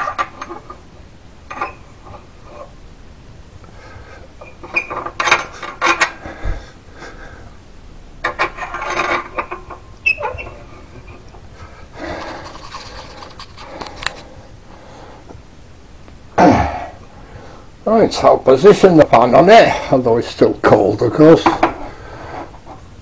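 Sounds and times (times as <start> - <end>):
metal knobs scraping and creaking: 0.0 - 2.8, 4.4 - 6.4, 8.2 - 14.4.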